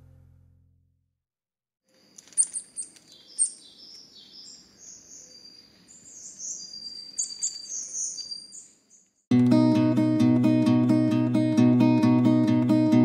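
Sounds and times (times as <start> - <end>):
small birds chirping: 2.0 - 9.3.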